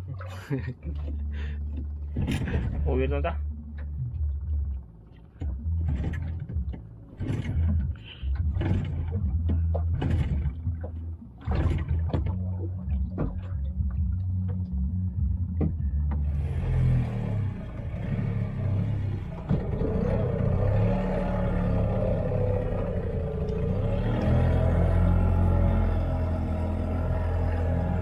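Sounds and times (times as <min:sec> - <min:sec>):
boat engine low rumble: 0:00.0 - 0:28.0
knocks and clatter on board: 0:01.8 - 0:02.9, 0:05.4 - 0:14.6.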